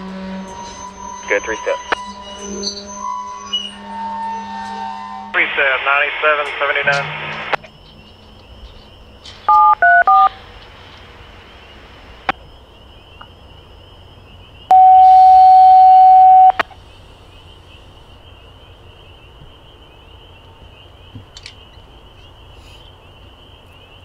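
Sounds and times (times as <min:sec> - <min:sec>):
faint high chirring: 0:00.0 - 0:07.2, 0:14.4 - 0:16.6
touch-tone beeps: 0:09.5 - 0:10.3, 0:14.7 - 0:16.6
long steady tone: 0:14.7 - 0:16.7.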